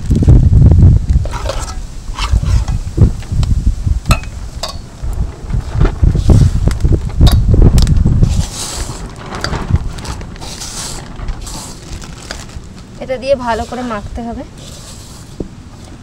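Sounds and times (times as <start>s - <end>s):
wind rumble on microphone: 0.0s - 16.0s
spoon clicking on steel bowls: 4.1s - 4.8s.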